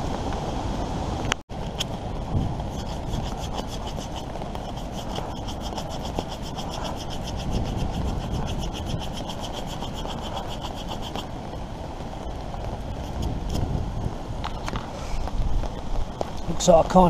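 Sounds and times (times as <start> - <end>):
hand saw cutting wood: 2.7 - 11.2.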